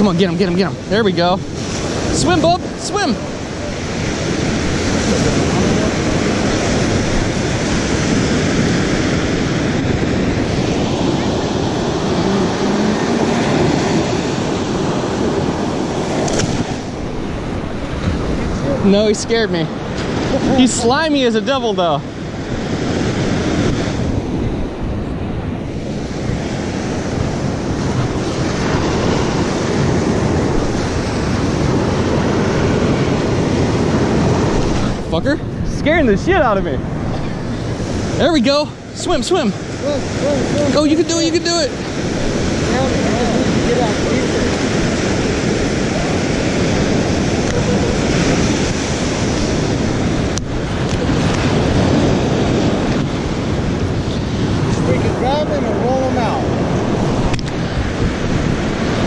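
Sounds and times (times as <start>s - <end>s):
ocean surf on a beach: 0.0s - 59.0s
wind noise on microphone: 0.0s - 59.0s.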